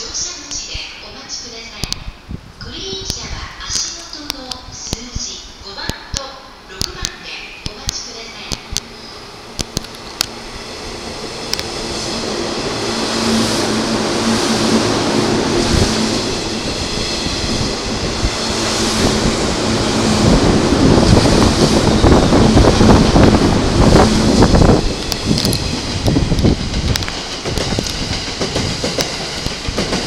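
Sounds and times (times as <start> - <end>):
low train hum: 0.0 - 30.0
train wheels rushing on rail: 7.8 - 30.0.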